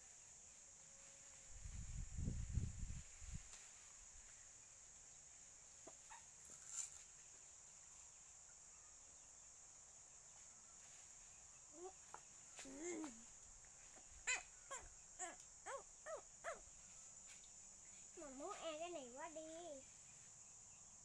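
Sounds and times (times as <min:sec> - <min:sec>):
faint animal calls: 0:11.7 - 0:16.8.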